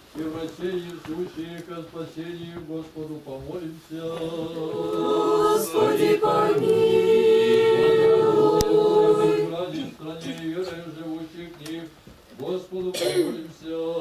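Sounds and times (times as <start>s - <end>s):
group singing liturgical chant: 3.8s - 11.8s, 12.4s - 14.0s.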